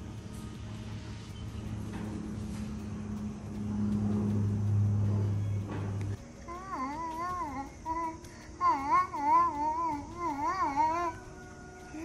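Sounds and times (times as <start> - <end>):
baby monkey whining: 6.4 - 12.0.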